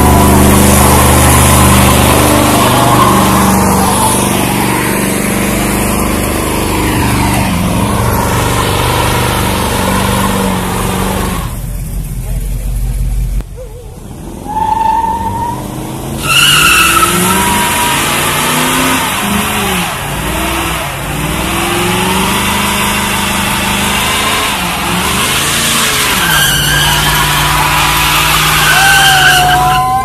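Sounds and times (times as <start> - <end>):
tyres squealing on asphalt: 0.0 - 11.7, 13.6 - 30.0
car engine revving: 0.0 - 30.0.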